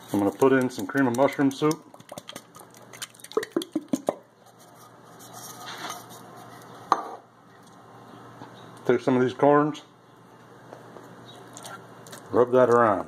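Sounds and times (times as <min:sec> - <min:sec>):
can knocking against pot: 0:03.2 - 0:04.2.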